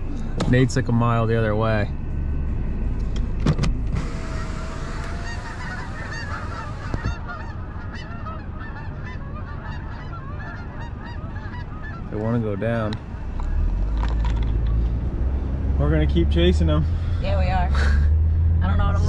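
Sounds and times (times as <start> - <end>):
low rumble: 0.0 - 19.0
geese honking: 4.0 - 13.7.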